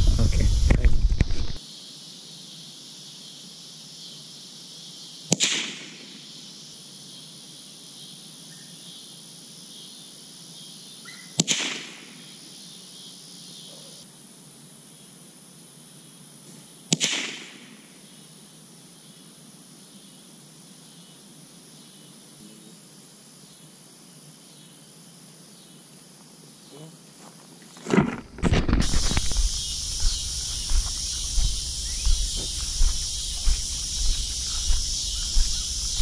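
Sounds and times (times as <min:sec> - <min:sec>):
rifle shots with echo: 0:05.4 - 0:06.0, 0:11.4 - 0:12.0, 0:16.9 - 0:17.6.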